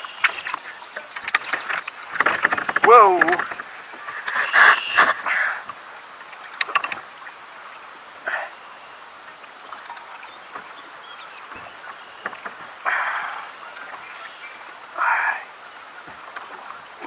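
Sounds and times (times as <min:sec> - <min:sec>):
clicks and knocks on kayak hull: 0:00.2 - 0:05.2, 0:06.4 - 0:07.1, 0:11.5 - 0:12.8.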